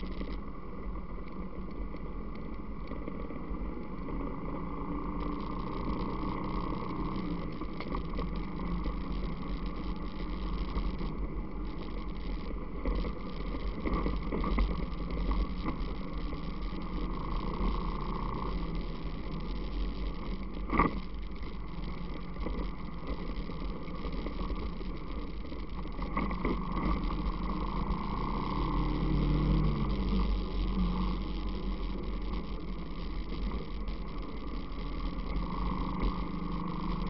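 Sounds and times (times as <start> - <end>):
atv engine revving: 26.2 - 33.6, 34.8 - 37.0.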